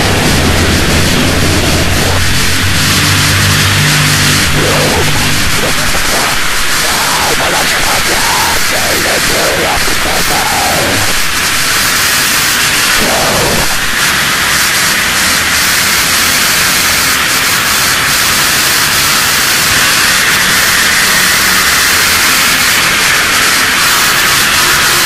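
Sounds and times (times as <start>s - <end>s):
low sweep: 0.0s - 16.8s
distorted static noise music: 0.0s - 25.0s.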